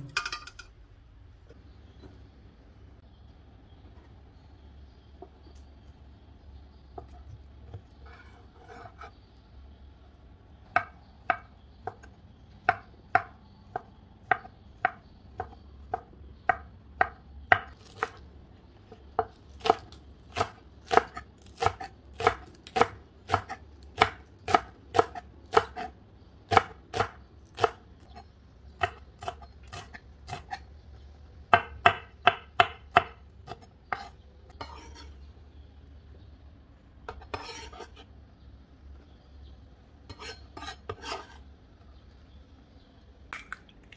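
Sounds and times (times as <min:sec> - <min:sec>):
knife chopping on wooden board: 0:19.2 - 0:25.9, 0:26.5 - 0:27.8, 0:31.5 - 0:35.0.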